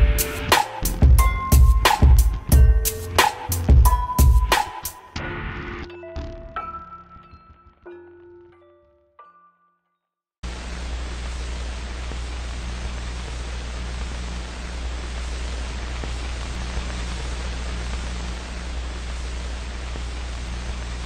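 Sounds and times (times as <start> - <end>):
static hiss: 10.4 - 21.0.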